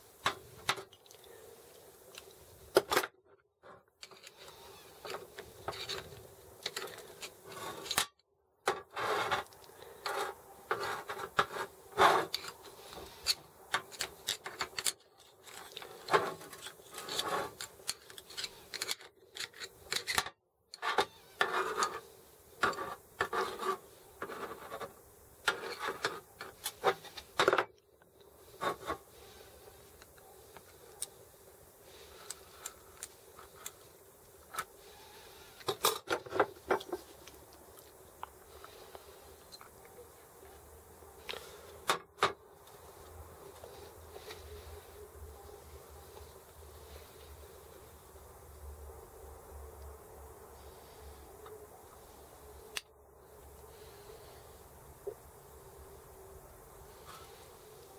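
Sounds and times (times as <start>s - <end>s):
faint steady hum: 0.0s - 57.9s
metal parts clicking and scraping: 2.1s - 27.8s, 31.9s - 37.6s.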